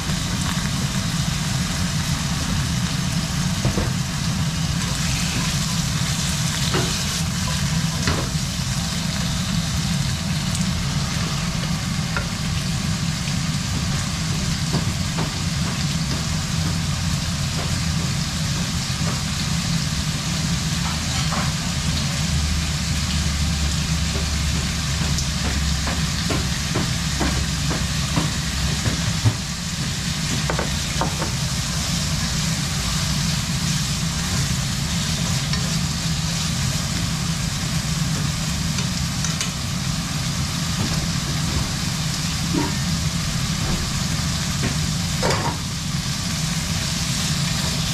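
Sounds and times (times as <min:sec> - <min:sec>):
meat sizzling in frying pan: 0:00.0 - 0:47.9.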